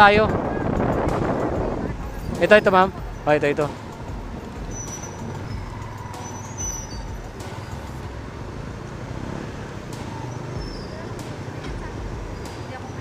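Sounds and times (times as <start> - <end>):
street traffic engine rumble: 0.0 - 13.0
faint high squeals: 4.6 - 8.0, 10.2 - 11.1.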